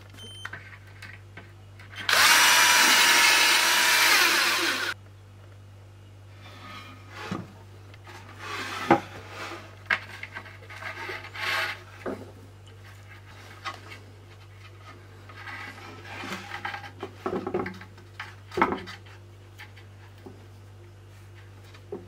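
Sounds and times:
cord rubbing against wood: 8.0 - 12.2.

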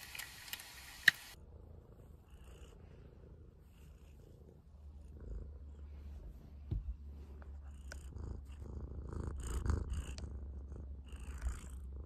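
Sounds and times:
cat purring: 1.4 - 12.0
soft rustling: 5.8 - 8.6.

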